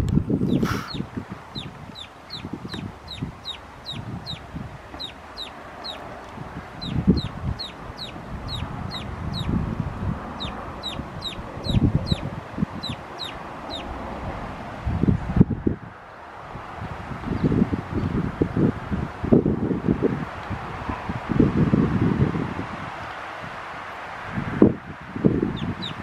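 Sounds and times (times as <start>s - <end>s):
chick peeping: 0.4s - 6.1s, 6.8s - 9.6s, 10.3s - 13.9s, 25.5s - 26.0s
chickens clucking: 0.5s - 9.6s.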